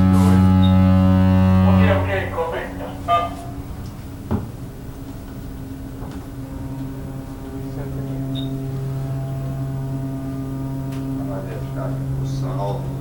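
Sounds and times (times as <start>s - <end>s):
ship horn low blast: 0.0s - 13.0s
short knock: 4.3s - 4.6s.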